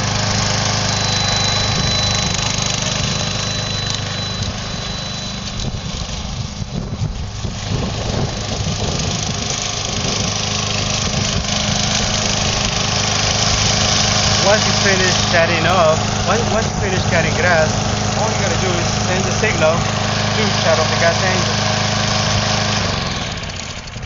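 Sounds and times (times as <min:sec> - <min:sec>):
lawn mower engine running: 0:00.0 - 0:24.0.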